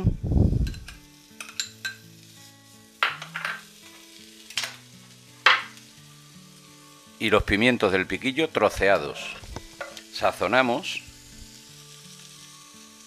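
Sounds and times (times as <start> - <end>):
light sizzling: 0.0 - 13.0
metal spoon scraping a pan: 0.7 - 2.3, 3.0 - 3.7.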